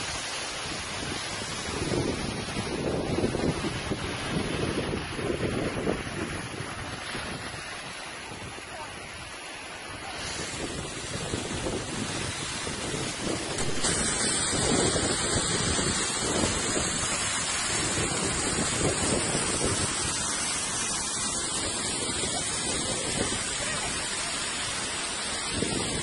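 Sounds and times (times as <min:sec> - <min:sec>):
waterfall rushing: 0:00.0 - 0:26.0
wind rumble on microphone: 0:00.0 - 0:26.0.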